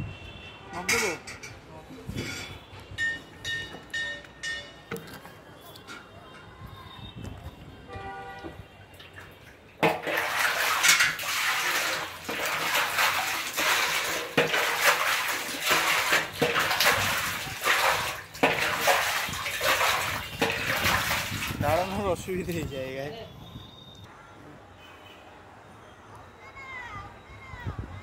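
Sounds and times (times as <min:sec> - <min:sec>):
scrubbing plastic tank wall: 0:09.8 - 0:22.0.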